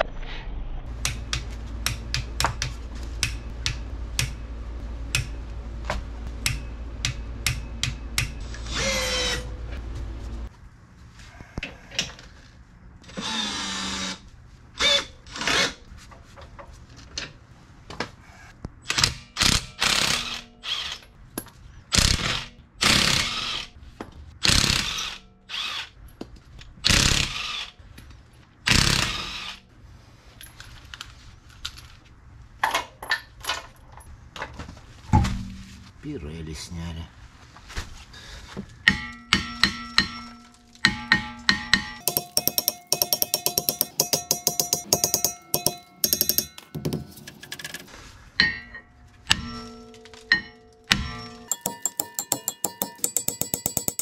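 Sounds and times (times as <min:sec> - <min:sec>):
socket ratchet clicking: 0:42.0 - 0:47.4.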